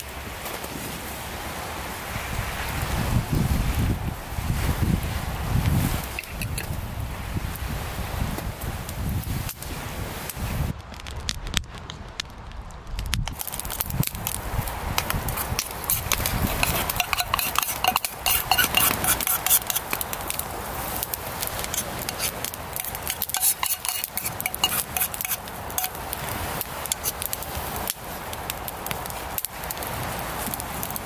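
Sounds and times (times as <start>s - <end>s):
fire crackling: 0.0s - 31.0s
food sizzling in skillet: 14.9s - 26.3s
utensil scraping pan: 15.0s - 20.4s, 21.4s - 26.0s.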